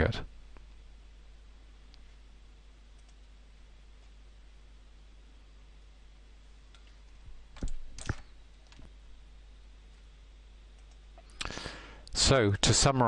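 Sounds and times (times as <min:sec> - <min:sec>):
low steady hum: 0:00.0 - 0:13.0
computer mouse clicks: 0:02.9 - 0:03.4, 0:06.7 - 0:08.9, 0:10.7 - 0:11.5.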